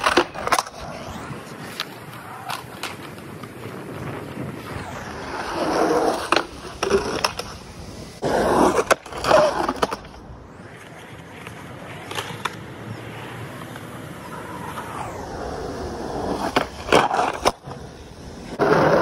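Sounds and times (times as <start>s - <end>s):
skateboard clacking on ground: 0.0s - 0.8s, 1.4s - 4.5s, 8.6s - 14.9s
skateboard wheels rolling on concrete: 0.0s - 19.0s.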